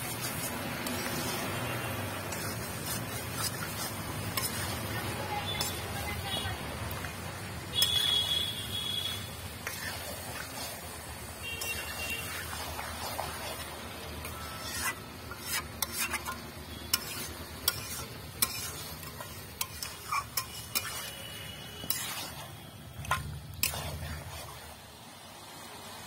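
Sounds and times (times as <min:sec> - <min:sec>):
spatula stirring wet meat: 0:00.0 - 0:25.0
spatula tapping pan: 0:02.3 - 0:07.2, 0:07.8 - 0:10.6, 0:11.4 - 0:13.6, 0:14.2 - 0:21.2, 0:21.8 - 0:22.3.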